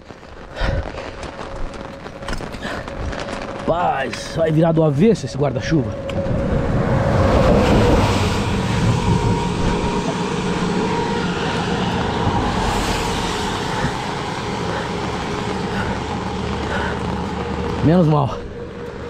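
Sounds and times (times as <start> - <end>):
heavy rain: 0.0 - 19.0
vehicle passing on wet road: 0.2 - 19.0
wind on microphone: 5.2 - 16.3.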